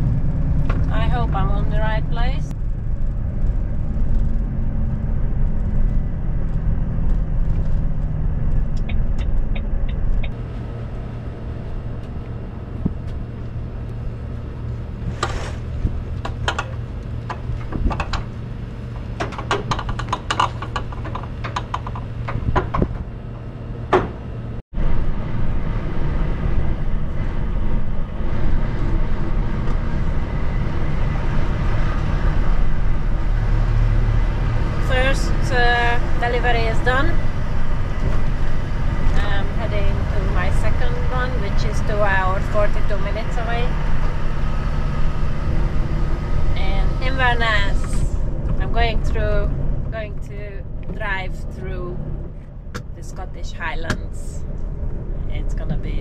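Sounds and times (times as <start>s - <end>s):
diesel lorry engine droning: 0.0s - 56.0s
sharp clicks and knocks: 5.4s - 10.4s, 15.2s - 24.4s.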